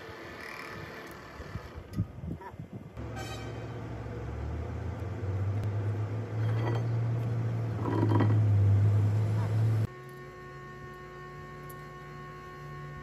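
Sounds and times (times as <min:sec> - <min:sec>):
hydraulic pump motor humming: 0:04.3 - 0:13.0.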